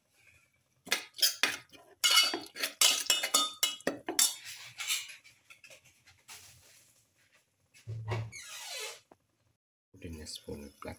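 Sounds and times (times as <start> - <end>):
metal spatula scraping a steel pot: 1.2 - 6.0.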